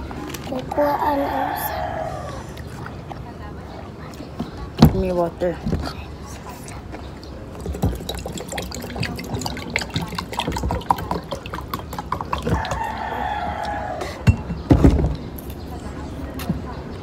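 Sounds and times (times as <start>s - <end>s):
rooster crowing: 1.0s - 2.5s, 12.5s - 14.2s
eating clicks and smacks: 7.6s - 12.9s.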